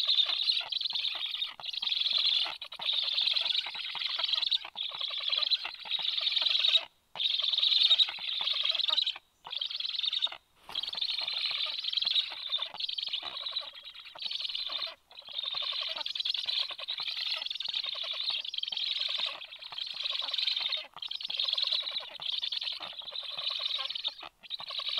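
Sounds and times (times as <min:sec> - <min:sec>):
bird nestlings chattering: 0:00.0 - 0:24.9.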